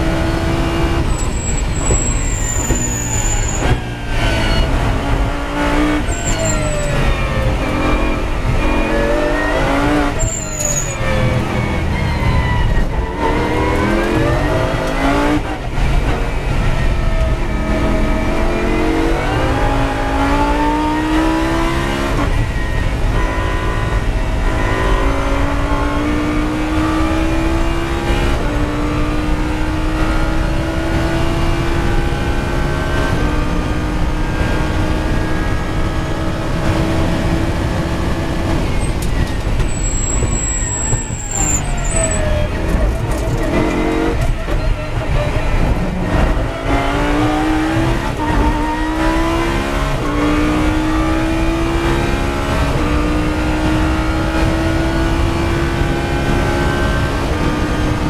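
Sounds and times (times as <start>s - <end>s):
car braking and downshifting: 0.0s - 58.0s
race car engine at full throttle: 0.0s - 58.0s.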